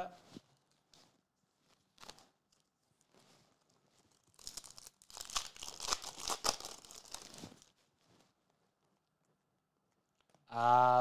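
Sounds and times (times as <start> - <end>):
foil wrapper tearing and crinkling: 1.9 - 2.3, 4.0 - 7.8.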